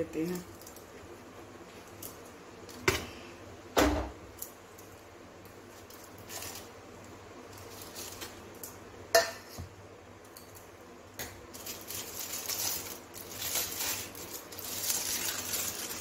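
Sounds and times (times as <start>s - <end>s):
aluminium foil crinkling: 0.0s - 1.1s, 4.3s - 8.8s, 11.4s - 16.0s.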